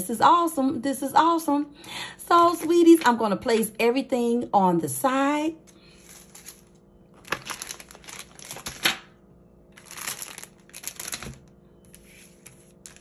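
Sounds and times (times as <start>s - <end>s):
paper crinkling and rustling: 5.9s - 9.1s, 9.8s - 13.0s.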